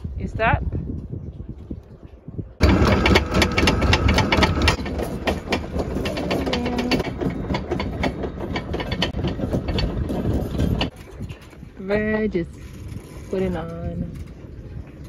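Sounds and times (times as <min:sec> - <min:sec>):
anchor chain clattering: 0:02.6 - 0:14.5.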